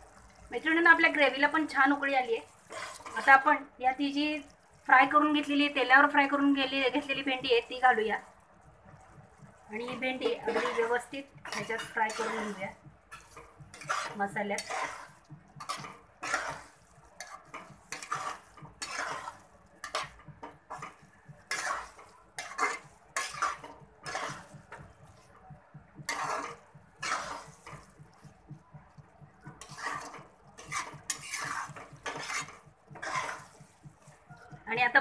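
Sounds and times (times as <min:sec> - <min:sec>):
metal spatula scraping metal pan: 0:01.9 - 0:03.7, 0:09.8 - 0:25.3, 0:26.0 - 0:28.1, 0:29.5 - 0:34.2.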